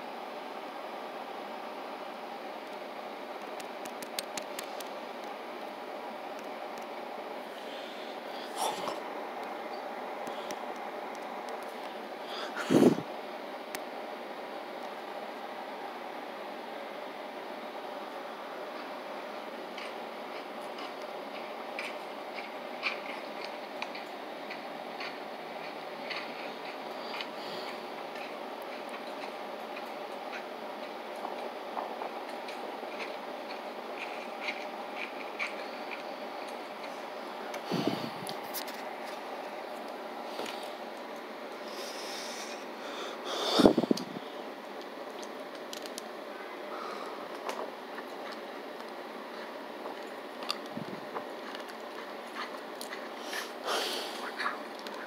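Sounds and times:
tinny steady noise: 0.0 - 55.0
rasping breathy noise: 12.2 - 13.1, 37.6 - 38.3, 41.6 - 44.3.

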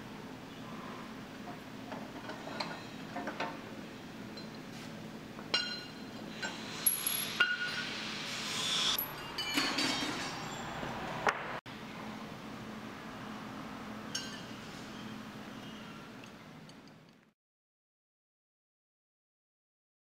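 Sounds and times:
metal tools clinking on steel frame: 2.2 - 3.6, 5.5 - 7.8, 9.0 - 11.0, 14.1 - 16.4.

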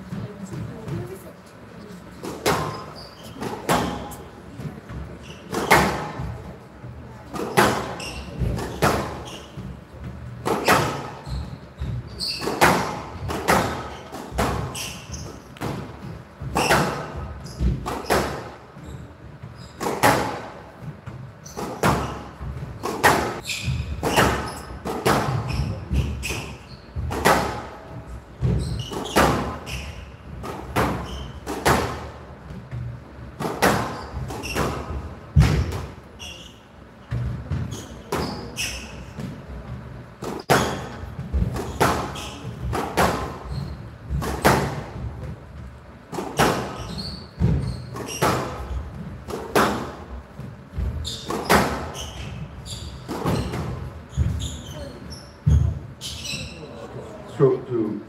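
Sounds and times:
squash ball hits echoing: 5.5 - 6.4, 7.3 - 9.7, 11.8 - 14.8, 15.5 - 18.6, 21.6 - 29.7, 33.4 - 36.0, 40.2 - 43.5, 44.1 - 45.3, 50.8 - 52.2.

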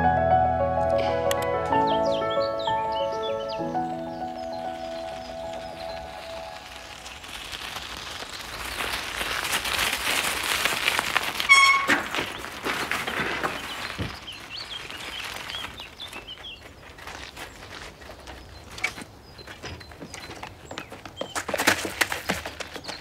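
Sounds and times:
bicycle tyres crunching on gravel: 1.6 - 23.0
bicycle brakes squealing: 11.4 - 12.4.

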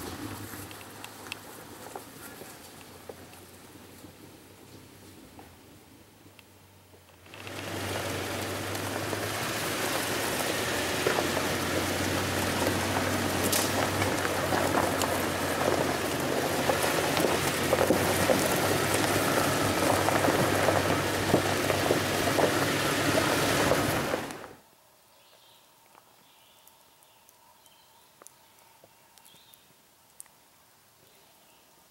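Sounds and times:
tyres crunching over gravel: 0.0 - 4.8, 7.2 - 24.6.

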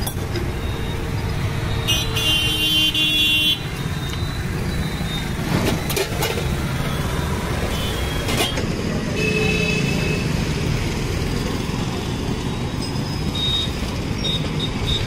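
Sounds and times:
street traffic rumbling: 0.0 - 15.0
vehicle horn honking: 1.9 - 3.7.

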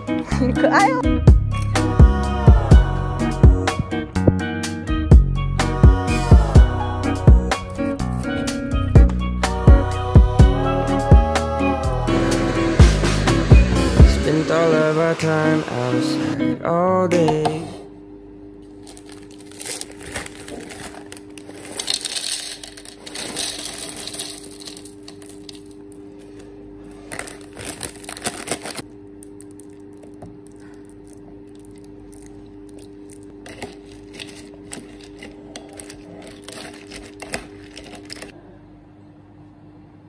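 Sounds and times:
steady low hum: 0.0 - 14.3
cereal clattering into a bowl: 18.9 - 25.8, 27.1 - 38.3
milk pouring over cereal: 29.4 - 33.3.

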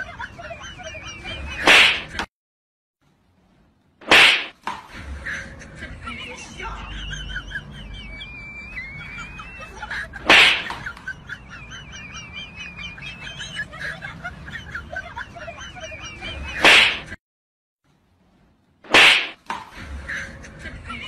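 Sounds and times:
loud swishes: 1.6 - 2.1, 4.0 - 4.6, 10.2 - 10.7, 16.6 - 17.2, 18.9 - 19.4.

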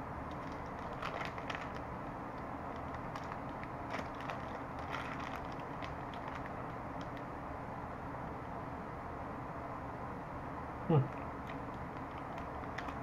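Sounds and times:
plastic wrapper crinkling: 0.3 - 7.3, 11.4 - 13.0.

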